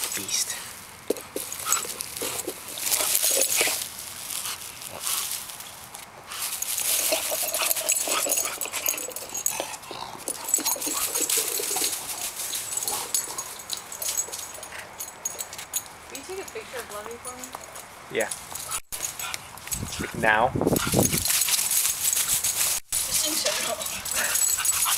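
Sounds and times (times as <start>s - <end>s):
paws and ball scuffing on grass: 1.1s - 8.6s, 10.4s - 17.6s, 20.8s - 24.9s.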